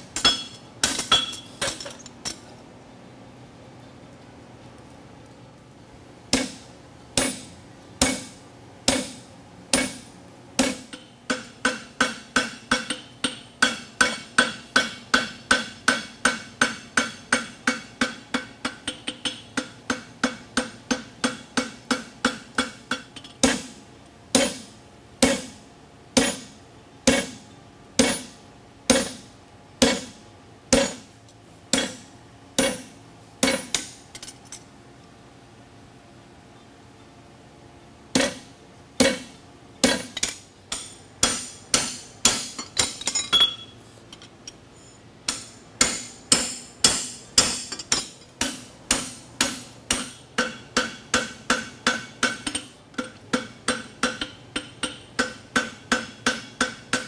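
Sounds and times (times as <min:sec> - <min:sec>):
hammer striking horseshoe on anvil: 0:00.1 - 0:02.4, 0:06.3 - 0:06.6, 0:07.2 - 0:25.6, 0:26.2 - 0:27.4, 0:28.0 - 0:31.1, 0:31.7 - 0:34.3, 0:38.1 - 0:43.7, 0:45.2 - 0:57.0.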